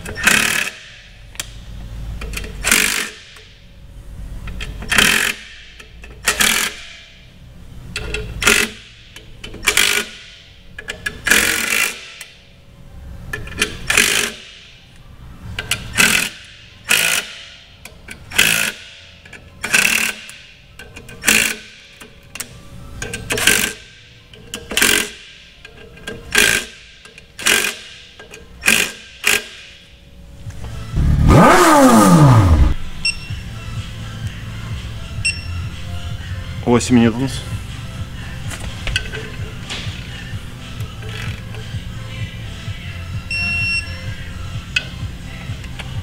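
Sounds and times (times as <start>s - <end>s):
ratchet wrench clicking: 0.0s - 1.6s, 2.2s - 3.5s, 4.4s - 7.0s, 7.9s - 12.3s, 13.3s - 14.6s, 15.6s - 29.7s, 40.9s - 41.9s.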